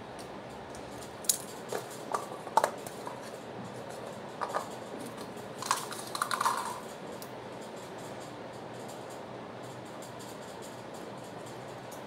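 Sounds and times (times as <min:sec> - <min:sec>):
paper cups clattering on floor: 0:04.4 - 0:06.9.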